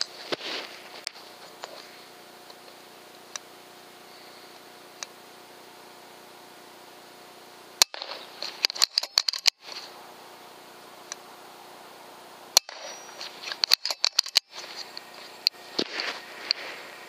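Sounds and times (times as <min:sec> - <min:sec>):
air rifle sharp clicks: 0:07.8 - 0:09.9, 0:12.5 - 0:15.6
small clicks and rattles: 0:07.9 - 0:09.9, 0:12.7 - 0:15.6.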